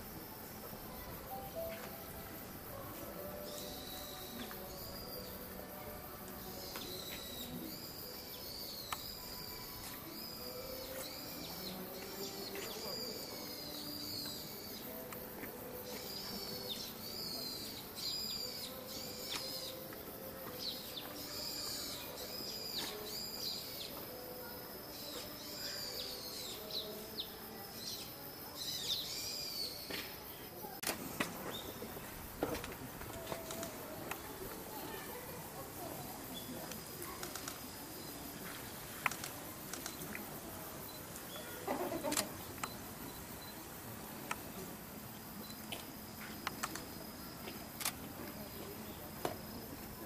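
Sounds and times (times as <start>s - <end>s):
faint murmur: 29.7s - 50.0s.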